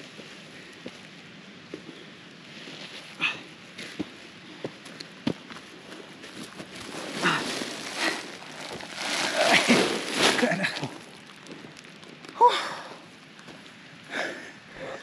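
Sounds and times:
rustling bags and grass: 5.6 - 14.0.

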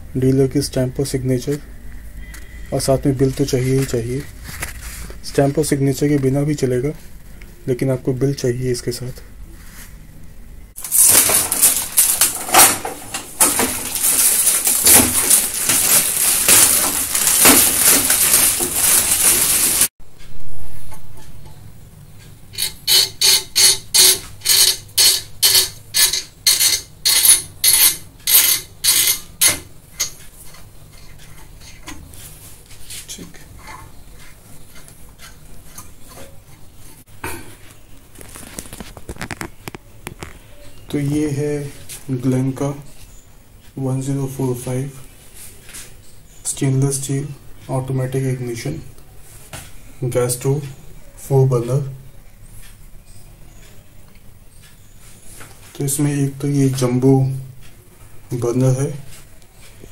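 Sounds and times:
plastic wrapping crinkling: 10.8 - 19.9, 37.7 - 40.5.

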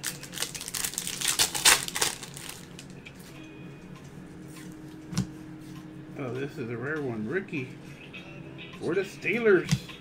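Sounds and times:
card wrappers crinkling: 0.0 - 2.9.

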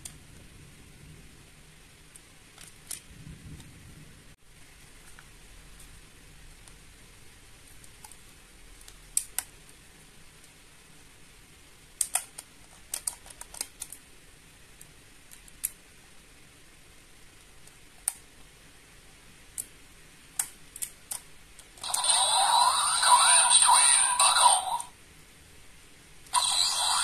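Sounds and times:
plastic toy clicking: 12.0 - 14.0, 20.4 - 21.9.

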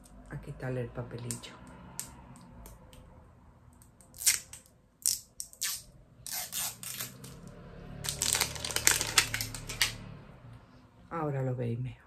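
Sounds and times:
plastic wrapper crackling: 8.0 - 10.0.

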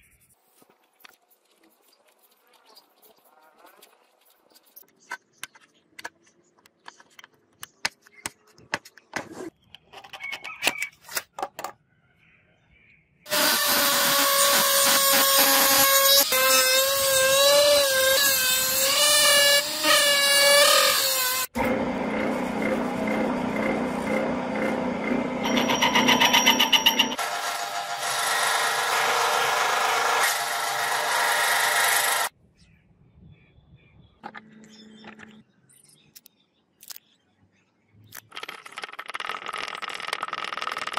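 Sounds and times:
rotary tool whine cutting brass: 13.3 - 32.3.

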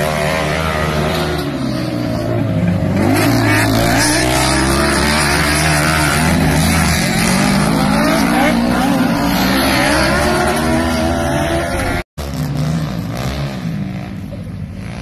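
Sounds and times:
ride-on mower engines revving: 0.0 - 15.0.

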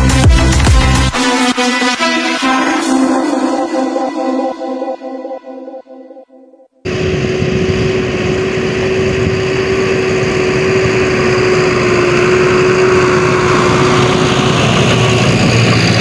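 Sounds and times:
tractor diesel engine under load: 6.9 - 16.0.

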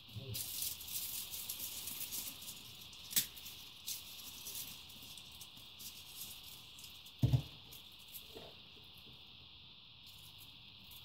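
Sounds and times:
hands sprinkling pizza toppings: 0.1 - 9.0
dull thump: 7.2 - 7.5.

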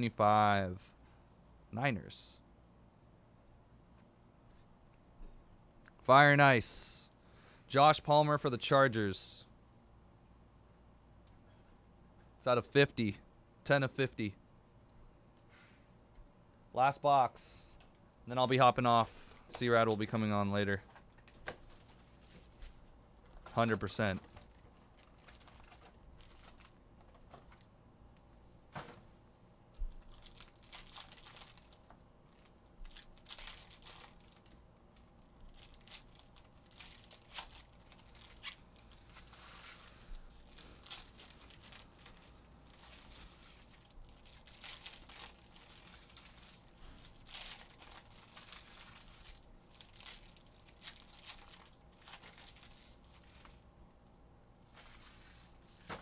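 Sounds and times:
wrappers torn and crinkled: 23.6 - 26.8, 29.9 - 53.7.

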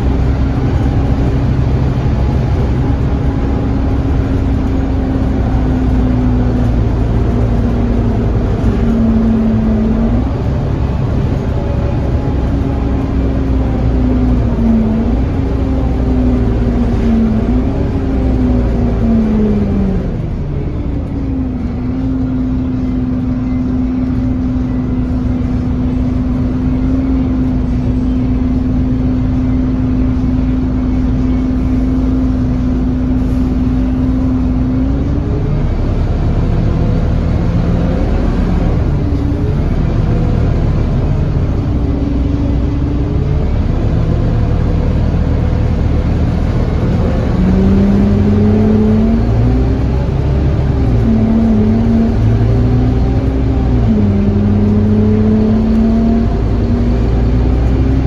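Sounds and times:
bus diesel engine: 0.0 - 58.0.

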